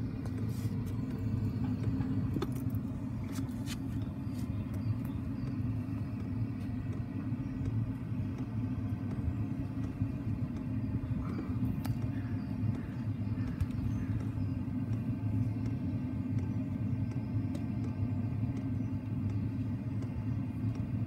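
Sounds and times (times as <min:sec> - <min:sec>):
diesel heater rumbling: 0:00.0 - 0:21.0
light clicks: 0:04.7 - 0:21.0.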